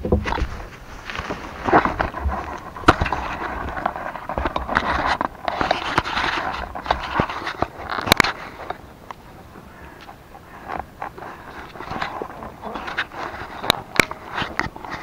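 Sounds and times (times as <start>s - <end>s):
sharp clicks and knocks: 0.0s - 9.2s.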